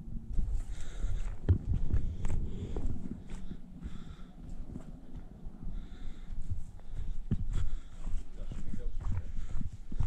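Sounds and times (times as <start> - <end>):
low rumble: 0.0 - 8.2
footsteps on dirt trail: 0.0 - 10.0.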